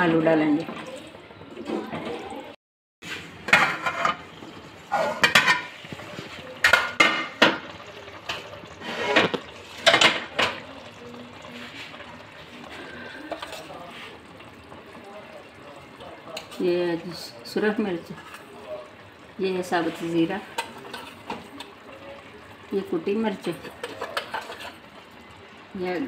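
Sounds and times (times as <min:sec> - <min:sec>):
pot lid clanking on steel pot: 0:04.9 - 0:05.8.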